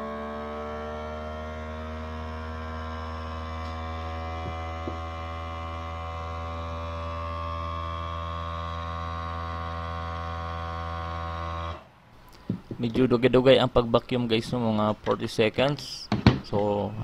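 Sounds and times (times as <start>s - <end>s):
vacuum sealer pump humming: 0.0s - 12.8s.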